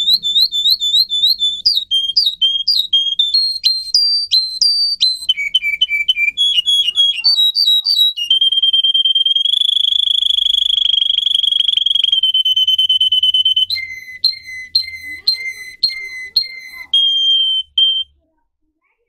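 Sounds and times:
canary singing: 0.0 - 18.1.

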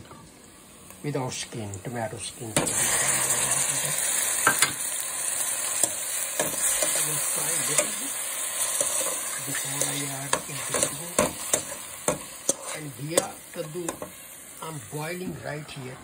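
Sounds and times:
vegetables sizzling in hot oil: 0.4 - 16.0
spoon scraping and knocking pot: 8.8 - 13.3.

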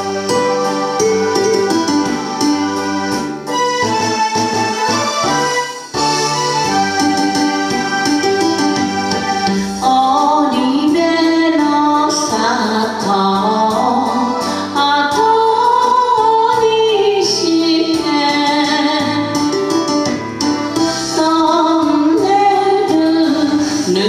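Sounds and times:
karaoke backing track with keyboard: 0.0 - 24.0
woman singing: 9.7 - 19.5, 21.0 - 24.0.

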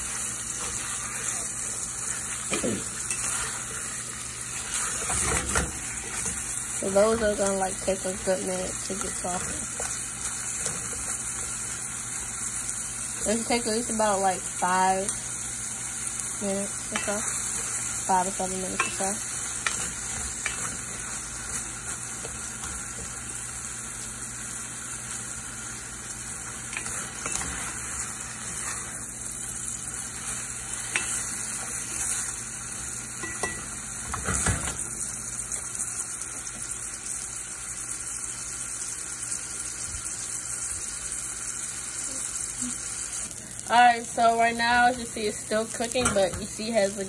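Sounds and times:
apple slices sizzling in butter: 0.0 - 47.0
wooden spoon scraping a pan: 26.8 - 29.0.

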